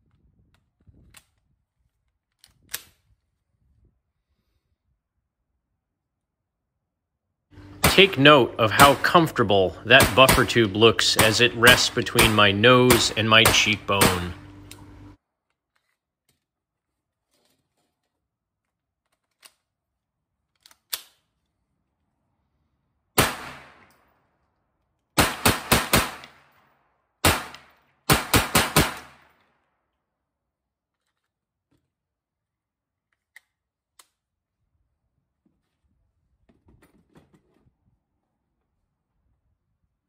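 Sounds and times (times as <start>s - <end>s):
metal clicks of gun handling: 0.5s - 3.1s, 19.0s - 19.8s, 20.4s - 21.6s
gunshots with echo: 7.6s - 14.7s.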